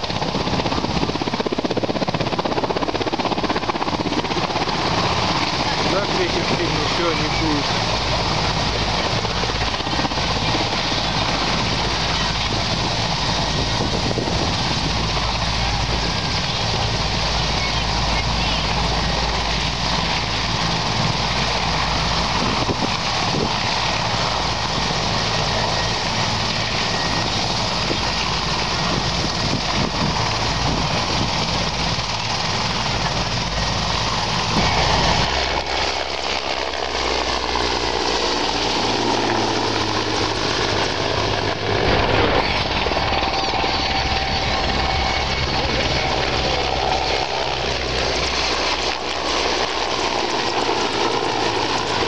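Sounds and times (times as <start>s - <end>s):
faint turbine whine: 0.0s - 52.0s
helicopter flying past: 0.0s - 52.0s.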